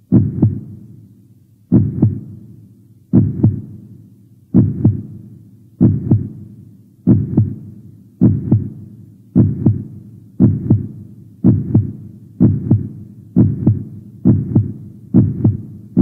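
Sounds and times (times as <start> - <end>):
heartbeat double thump: 0.1 - 0.7, 1.7 - 2.2, 3.2 - 3.6, 4.6 - 5.0, 5.8 - 6.3, 7.1 - 7.6, 8.2 - 8.7, 9.4 - 9.8, 10.4 - 16.0.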